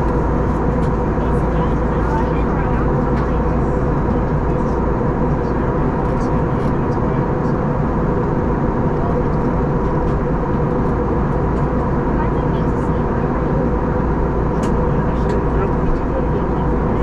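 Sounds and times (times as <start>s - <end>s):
engine and airflow rush: 0.0s - 17.0s.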